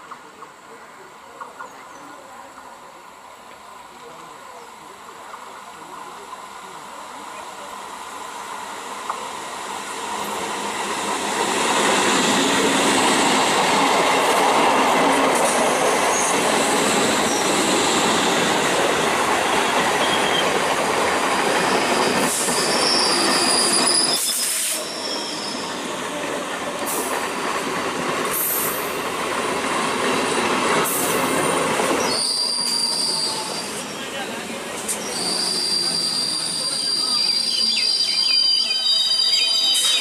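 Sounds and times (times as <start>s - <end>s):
train wheels rolling on rails: 0.0s - 40.0s
high wheel squeal: 15.6s - 18.7s, 19.4s - 20.7s, 21.4s - 26.3s, 32.0s - 34.2s, 34.8s - 40.0s.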